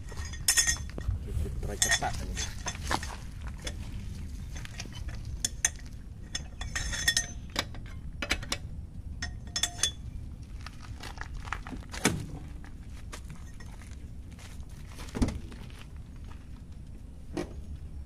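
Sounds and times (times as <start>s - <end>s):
metal clinks of lug nut: 0.0s - 1.1s, 1.8s - 3.0s, 4.5s - 10.0s
low steady background rumble: 0.0s - 18.0s.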